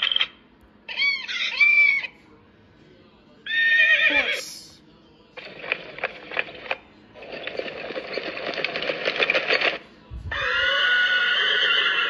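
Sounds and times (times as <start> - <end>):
horse whinny: 3.5 - 4.4, 10.3 - 12.0
rapid clattering: 5.4 - 9.8.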